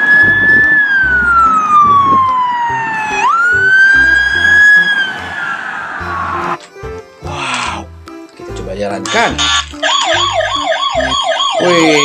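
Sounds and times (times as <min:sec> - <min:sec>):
police siren wailing: 0:00.0 - 0:06.6, 0:09.5 - 0:12.0.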